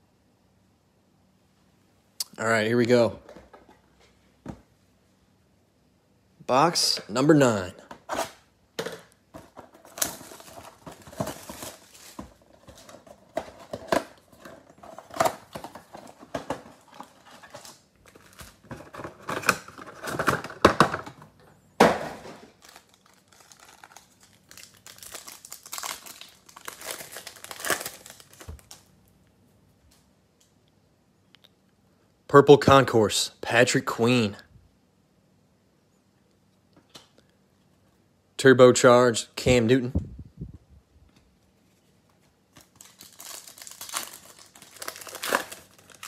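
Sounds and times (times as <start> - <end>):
foil pack crinkling: 9.4 - 21.0, 22.2 - 28.9, 42.2 - 46.0
packaging crinkling and tearing: 9.4 - 21.0, 22.4 - 28.9, 42.5 - 46.0.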